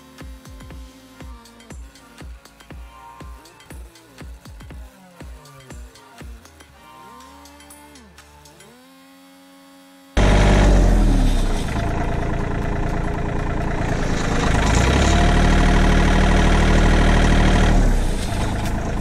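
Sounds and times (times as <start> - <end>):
background music: 0.0 - 9.1
tractor engine running under load: 10.2 - 19.0.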